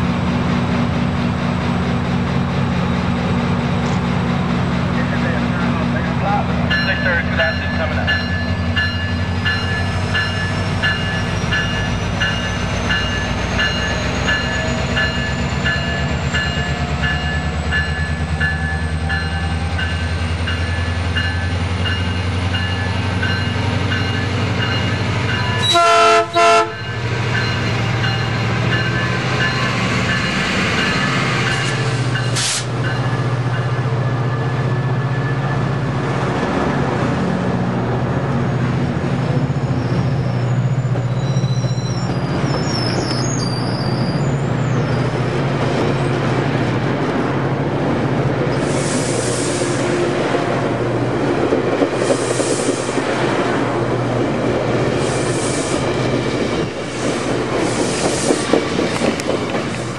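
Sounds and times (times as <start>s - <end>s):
diesel locomotive engine running: 0.0s - 59.9s
locomotive bell ringing: 5.3s - 35.9s
train horn blasts: 25.6s - 26.8s
hiss of air: 32.0s - 32.8s, 48.5s - 49.9s, 52.0s - 53.0s, 55.0s - 55.9s, 56.9s - 58.7s.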